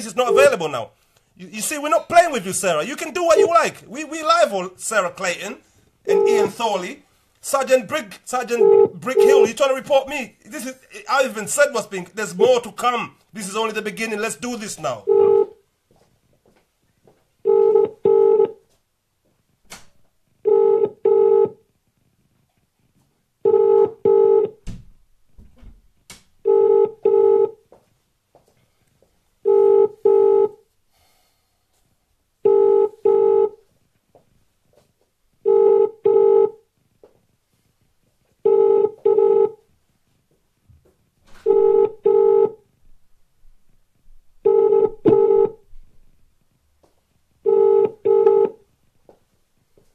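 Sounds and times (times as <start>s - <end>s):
telephone ringback tone: 15.1s - 15.5s, 17.5s - 18.6s, 20.5s - 21.6s, 23.5s - 24.6s, 26.5s - 27.6s, 29.5s - 30.6s, 32.5s - 33.6s, 35.5s - 36.6s, 38.5s - 39.6s, 41.4s - 42.6s, 44.5s - 45.6s, 47.5s - 48.6s.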